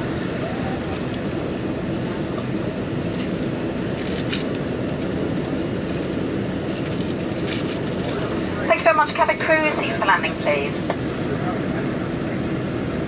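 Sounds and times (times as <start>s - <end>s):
aircraft cabin engine rumble: 0.0s - 13.0s
airflow over fuselage: 0.0s - 13.0s.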